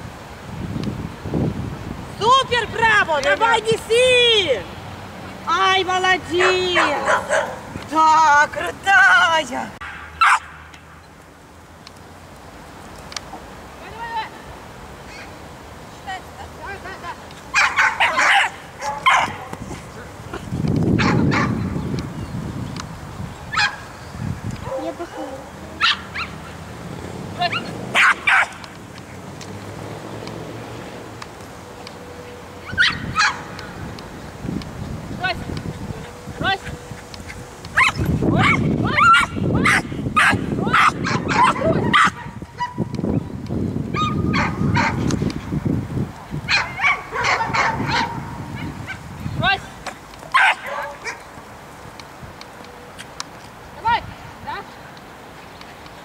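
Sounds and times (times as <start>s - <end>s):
dog barking: 6.4s - 7.7s, 9.8s - 10.5s, 17.5s - 19.4s, 21.0s - 21.6s, 23.5s - 23.8s, 25.8s - 26.4s, 27.5s - 28.6s, 32.8s - 33.4s, 37.8s - 42.8s, 44.0s - 45.0s, 46.5s - 48.3s, 50.3s - 51.2s.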